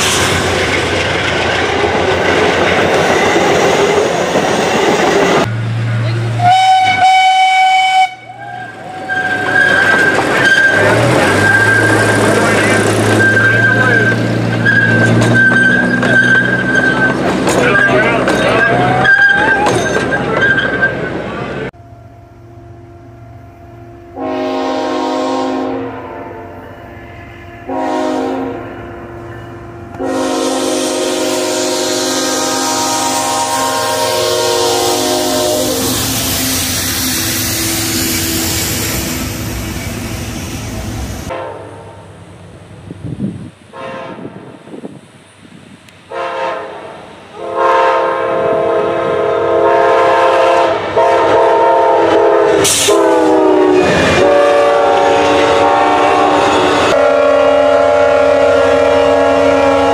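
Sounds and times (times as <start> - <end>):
passenger train rolling past: 0.0 - 59.9
locomotive air horn blasts: 6.3 - 19.6, 24.2 - 26.9, 27.6 - 39.3, 41.2 - 41.9, 43.7 - 44.4, 46.1 - 59.9
miniature train whistle: 6.4 - 12.4, 13.1 - 21.0, 24.2 - 26.8, 27.6 - 28.8, 29.9 - 38.8, 47.4 - 59.9.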